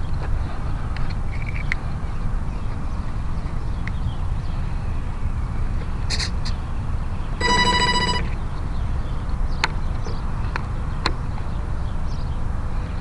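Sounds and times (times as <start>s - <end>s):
low wind rumble on microphone: 0.0s - 7.4s
electronic beep: 7.4s - 8.4s.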